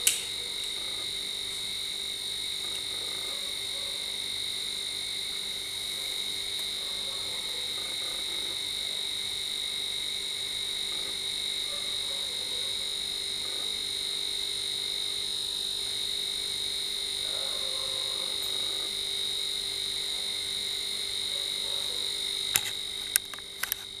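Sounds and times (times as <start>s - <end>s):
faint pulsing hum: 0.0s - 24.0s.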